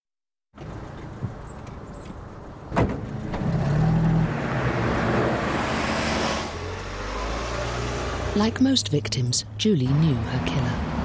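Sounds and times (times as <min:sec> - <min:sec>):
road noise: 0:00.5 - 0:11.0
car engine: 0:03.0 - 0:11.0.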